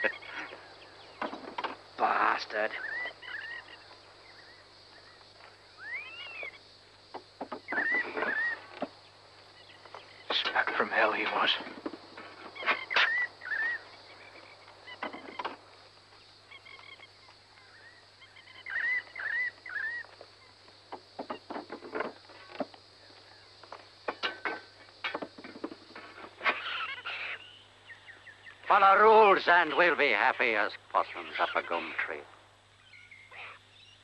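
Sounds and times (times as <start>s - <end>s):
birds calling: 0.0s - 34.0s
sharp knocks: 7.1s - 8.9s, 24.1s - 26.3s.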